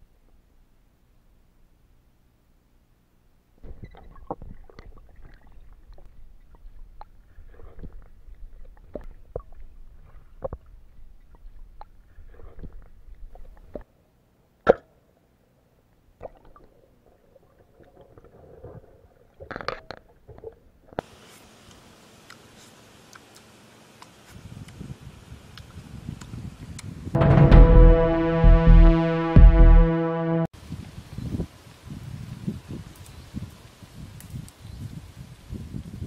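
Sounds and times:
steady hiss: 21.0 - 25.2.

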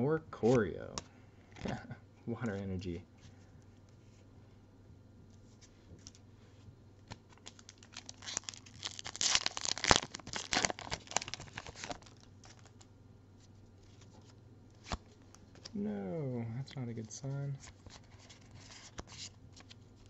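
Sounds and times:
foil wrapper crinkling and tearing: 7.3 - 12.8.

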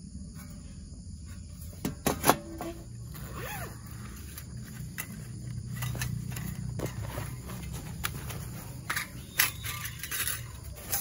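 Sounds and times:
metal clinks of camp stove: 4.8 - 7.0, 8.8 - 11.0.

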